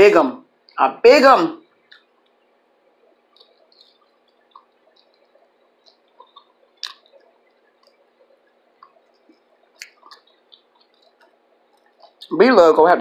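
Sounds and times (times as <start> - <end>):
person chewing: 3.3 - 8.0, 8.8 - 12.2
wet mouth clicks and smacks: 3.3 - 8.0, 8.8 - 12.3.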